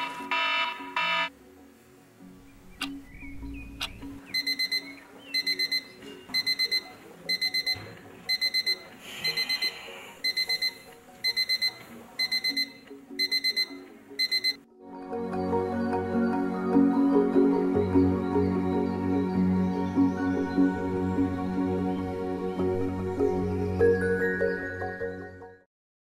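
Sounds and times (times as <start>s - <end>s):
alarm clock beeping: 0.0s - 1.3s, 4.3s - 14.6s.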